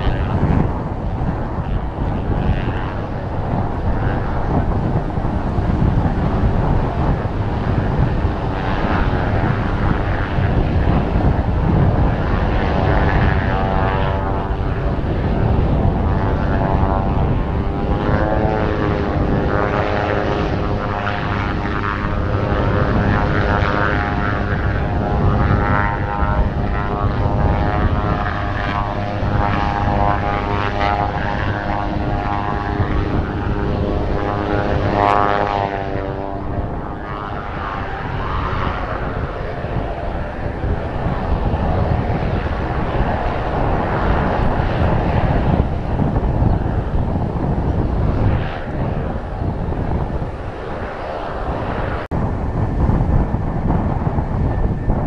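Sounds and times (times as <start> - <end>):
turboprop engine whining hum: 0.0 - 55.0
wind rumble on microphone: 0.0 - 55.0.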